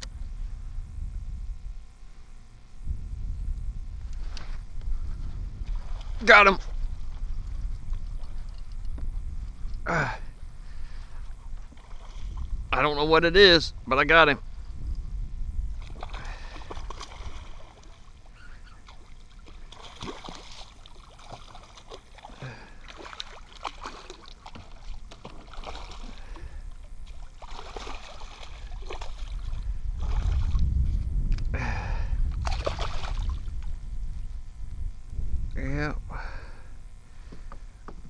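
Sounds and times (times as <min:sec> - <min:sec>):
fish thrashing and splashing water: 0:15.8 - 0:30.6, 0:32.4 - 0:33.5.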